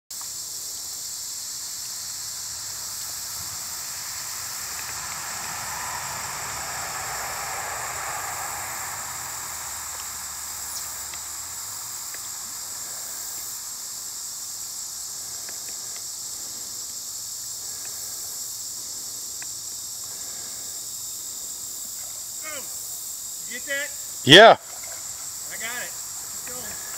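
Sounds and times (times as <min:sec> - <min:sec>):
high-pitched insect chorus: 0:00.1 - 0:26.9
low rushing sound: 0:03.4 - 0:11.0.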